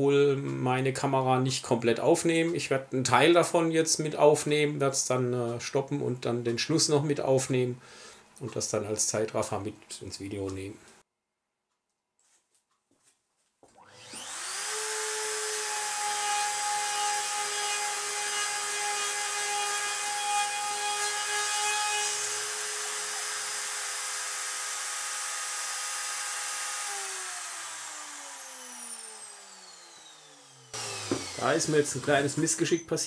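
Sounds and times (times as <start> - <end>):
router spindle whining: 13.8 - 33.0.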